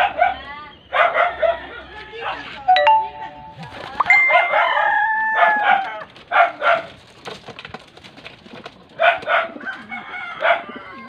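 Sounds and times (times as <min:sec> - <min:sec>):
dog barking: 0:00.0 - 0:01.7, 0:04.4 - 0:06.9, 0:09.0 - 0:09.6, 0:10.4 - 0:10.7
rooster crowing: 0:09.7 - 0:11.0.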